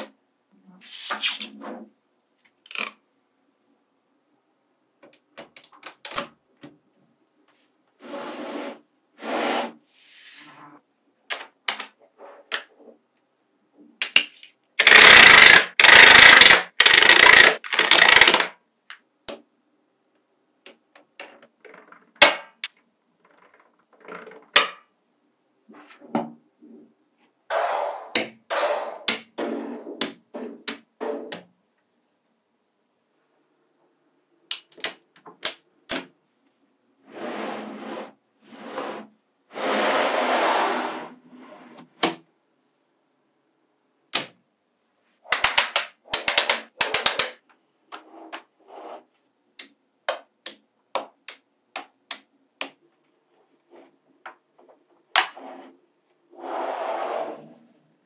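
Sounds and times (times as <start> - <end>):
magnetic balls clicking together: 14.0 - 19.4, 45.3 - 48.4.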